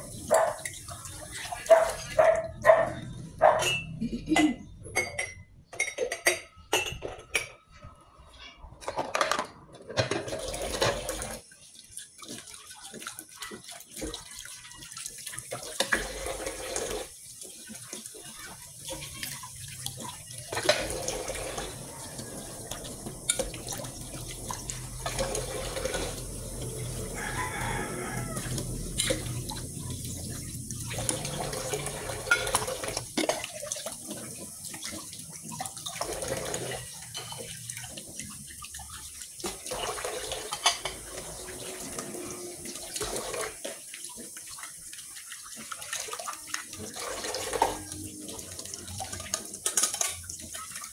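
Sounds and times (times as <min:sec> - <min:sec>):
tap water running into sink: 0:00.0 - 0:02.8, 0:10.0 - 0:50.9
dishes clinking: 0:03.4 - 0:07.9, 0:20.5 - 0:23.9, 0:32.1 - 0:33.6, 0:37.1 - 0:37.6, 0:40.4 - 0:41.2, 0:49.5 - 0:50.2.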